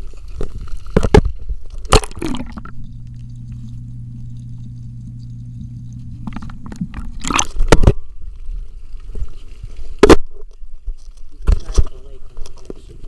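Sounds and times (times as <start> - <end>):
muffled underwater hum: 1.7 - 10.8.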